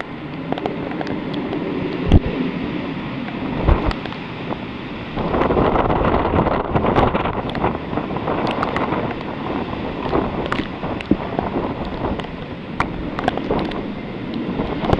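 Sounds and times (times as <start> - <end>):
gusty wind buffeting microphone: 0.0 - 14.9
small sharp ticks: 8.4 - 9.3, 10.0 - 14.9.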